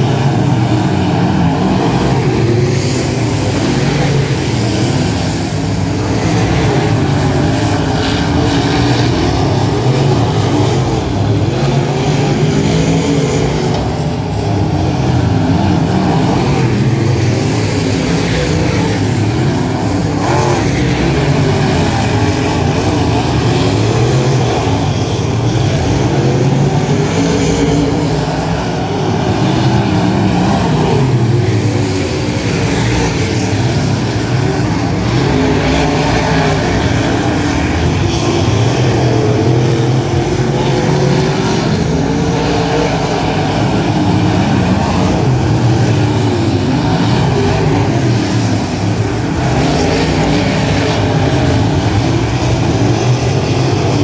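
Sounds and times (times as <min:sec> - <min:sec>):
race car engines revving: 0:00.0 - 0:54.0.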